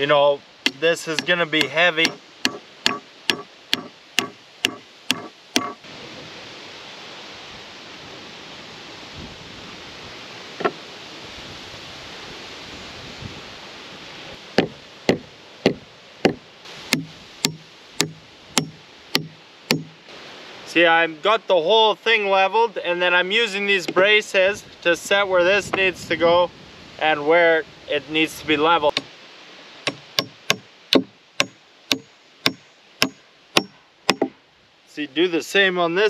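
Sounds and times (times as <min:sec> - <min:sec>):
hammer driving nails into wood: 0:00.7 - 0:05.8, 0:14.6 - 0:20.0, 0:29.9 - 0:34.3.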